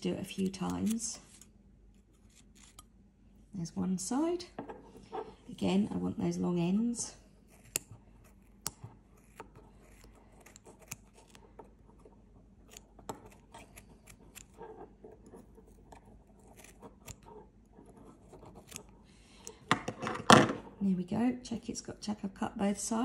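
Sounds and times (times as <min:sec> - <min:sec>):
scissors snipping yarn: 0:00.0 - 0:02.9, 0:07.5 - 0:19.6.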